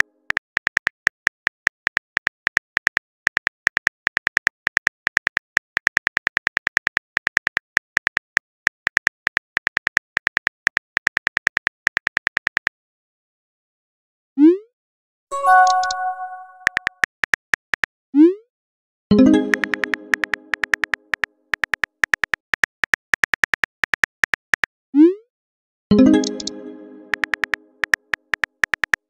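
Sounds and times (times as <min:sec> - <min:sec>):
bright multi-tone chime: 0:15.3 - 0:16.7
phone keyboard tap clicks: 0:19.5 - 0:24.4, 0:26.2 - 0:29.0.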